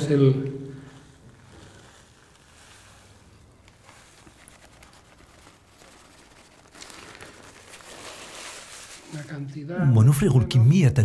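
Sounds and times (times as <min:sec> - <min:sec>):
rustling hiss: 0:00.0 - 0:09.2
paper crinkling: 0:00.8 - 0:09.5.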